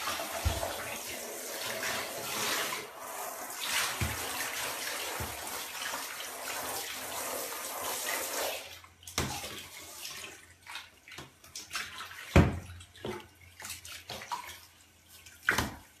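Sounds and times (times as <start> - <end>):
shower spraying water: 0.0 - 8.8
water splashes and drips: 0.0 - 16.0.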